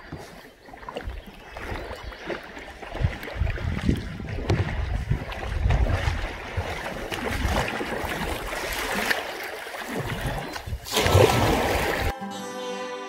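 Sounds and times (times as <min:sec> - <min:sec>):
water rushing along hulls: 0:00.0 - 0:12.1
water splashing off paddles: 0:00.0 - 0:12.1
wind rumbling on microphone: 0:00.9 - 0:09.0, 0:09.9 - 0:12.1.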